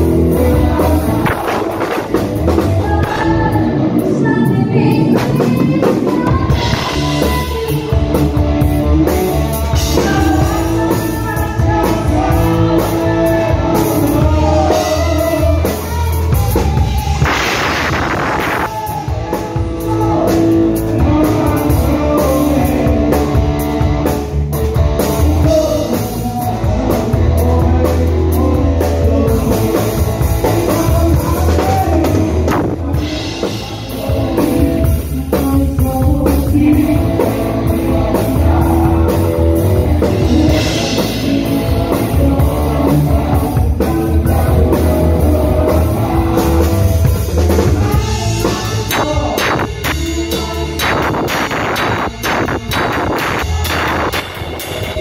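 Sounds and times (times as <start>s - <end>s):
drums and cymbals: 0.0s - 55.0s
rock band playing live: 0.0s - 55.0s.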